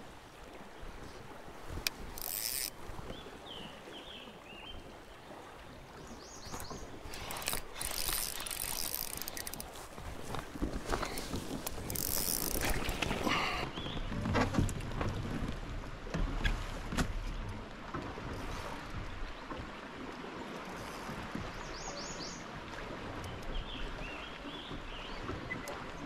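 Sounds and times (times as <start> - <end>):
water noise: 0.0 - 26.0
wind: 0.0 - 26.0.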